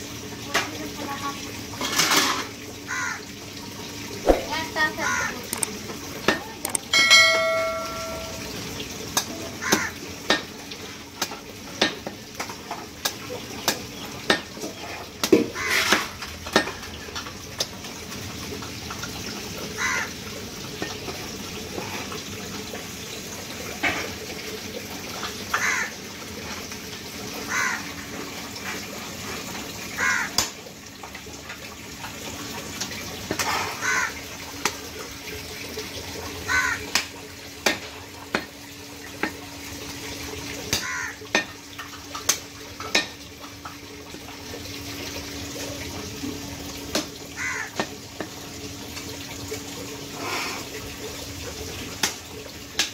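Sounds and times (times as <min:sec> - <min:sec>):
brief pitched tone: 0:07.0 - 0:08.5.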